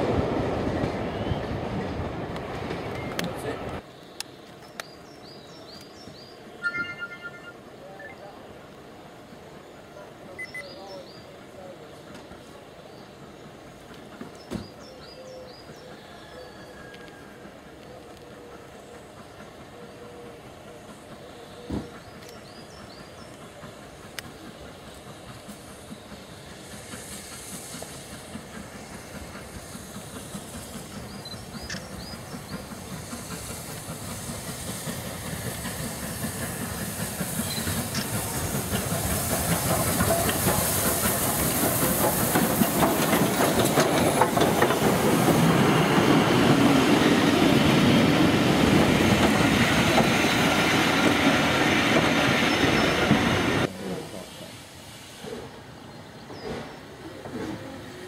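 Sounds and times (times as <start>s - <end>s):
steam locomotive passing: 0.0s - 58.0s
steam hiss: 11.2s - 58.0s
wheels clicking over rail joints: 27.6s - 47.3s.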